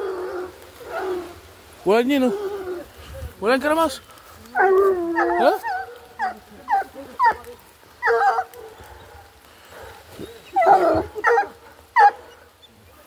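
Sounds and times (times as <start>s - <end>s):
dogs barking and yelping: 4.5s - 12.8s.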